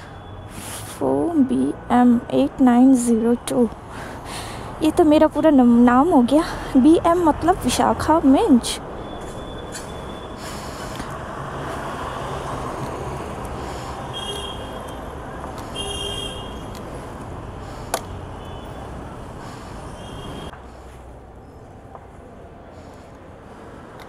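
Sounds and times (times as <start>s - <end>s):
street traffic noise: 0.0s - 24.0s
short high vehicle horn toots: 15.8s - 16.6s.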